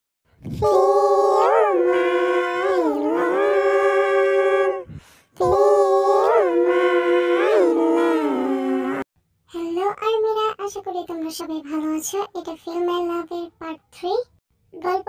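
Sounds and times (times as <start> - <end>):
dog howling: 0.6 - 9.0.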